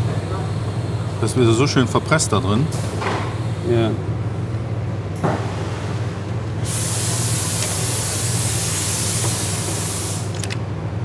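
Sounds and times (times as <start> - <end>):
steady low hum: 0.0 - 11.0
spray hissing: 6.6 - 10.3.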